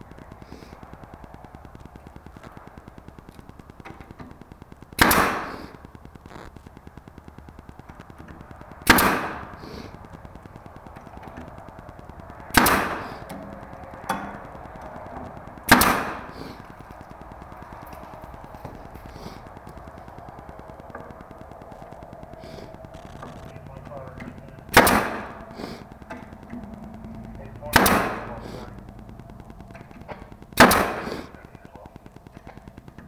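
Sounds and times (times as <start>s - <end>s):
nail gun firing into wood: 5.0s - 5.6s, 8.9s - 9.4s, 12.5s - 13.0s, 15.7s - 16.3s, 24.7s - 25.2s, 27.7s - 28.2s, 30.6s - 31.2s.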